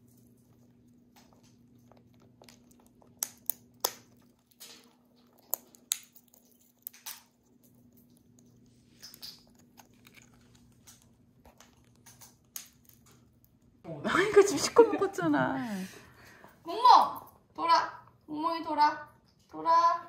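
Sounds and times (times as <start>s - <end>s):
parrots cracking nut shells: 0.0s - 13.8s.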